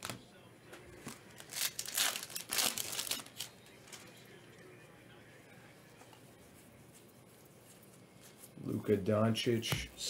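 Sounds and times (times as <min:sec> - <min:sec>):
foil wrapper tearing and crinkling: 0:01.1 - 0:03.6.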